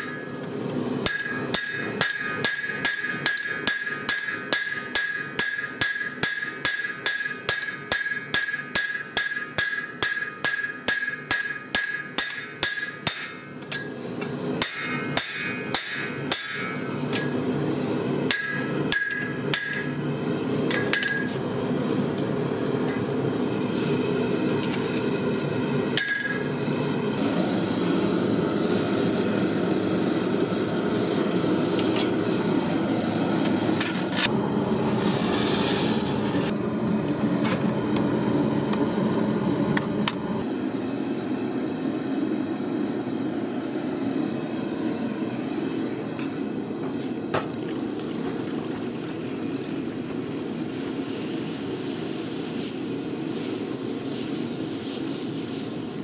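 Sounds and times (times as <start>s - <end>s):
hammer blows on anvil: 18.3s - 20.0s, 26.0s - 26.5s.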